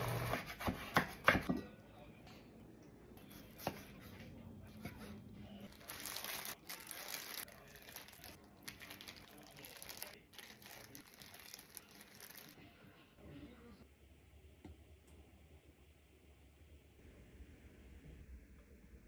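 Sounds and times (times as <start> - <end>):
plastic gloves crinkling: 5.7 - 12.6.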